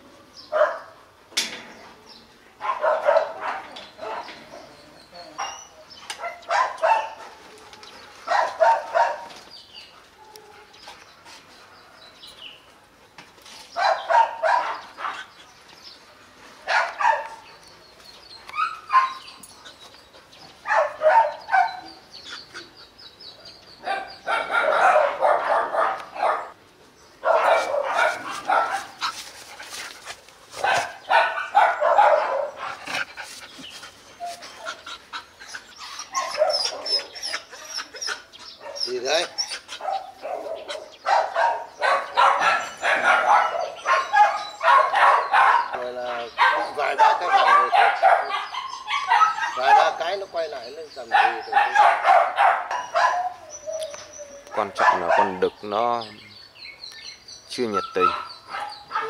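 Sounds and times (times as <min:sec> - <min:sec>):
dogs barking: 0:00.5 - 0:01.0, 0:02.6 - 0:10.8, 0:13.7 - 0:15.4, 0:16.6 - 0:17.6, 0:18.4 - 0:19.6, 0:20.6 - 0:26.6, 0:27.2 - 0:29.2, 0:30.5 - 0:33.1, 0:34.1 - 0:56.1, 0:57.6 - 0:59.0.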